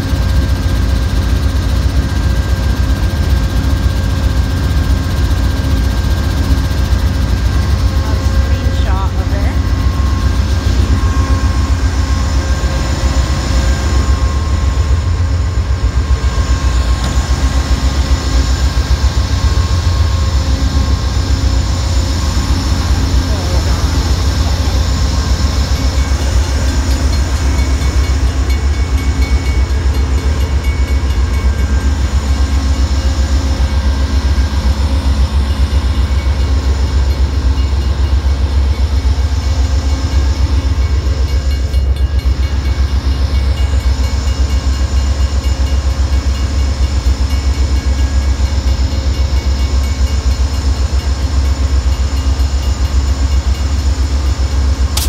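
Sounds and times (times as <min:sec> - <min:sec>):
diesel locomotive idling: 0:00.0 - 0:55.0.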